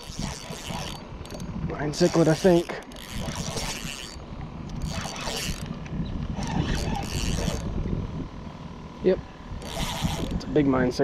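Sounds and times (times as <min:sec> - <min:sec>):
fishing reel whirring rattle: 0:00.0 - 0:11.0
low rumble: 0:03.2 - 0:10.6.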